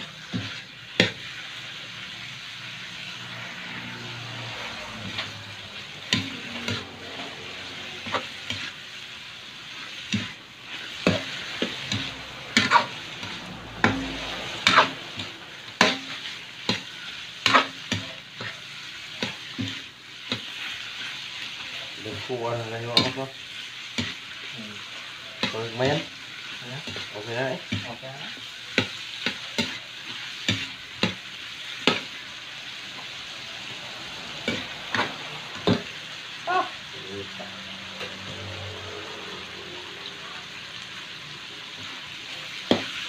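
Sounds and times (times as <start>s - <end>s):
metal spatula scraping wok: 0.0s - 36.4s
frying sizzle: 0.0s - 43.0s.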